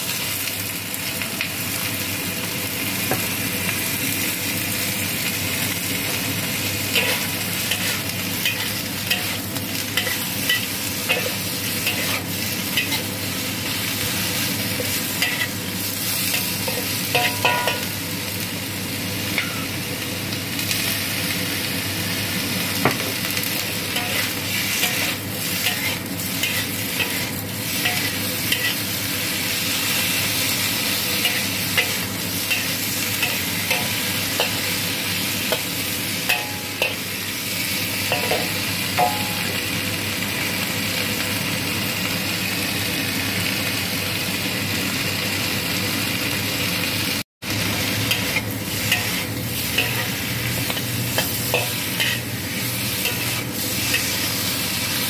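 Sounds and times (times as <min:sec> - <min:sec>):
food sizzling in a wok: 0:00.0 - 0:55.0
metal spatula scraping pan: 0:48.1 - 0:54.2.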